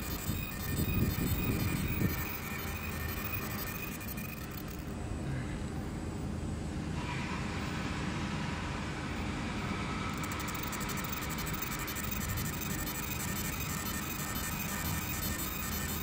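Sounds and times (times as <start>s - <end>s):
laser marking machine running: 0.0s - 5.0s, 10.1s - 16.0s.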